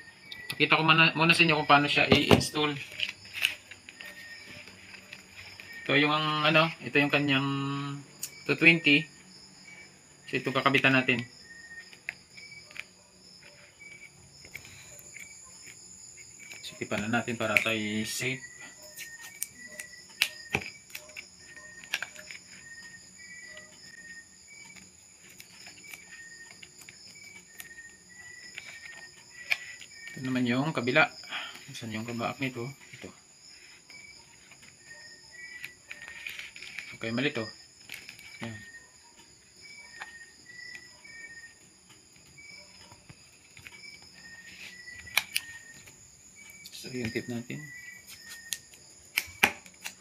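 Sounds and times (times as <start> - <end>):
high-pitched insect trilling: 0.0 - 50.0
insect chirps: 0.0 - 50.0
wires twisting clicks: 10.7 - 31.0, 31.6 - 47.3, 48.0 - 50.0.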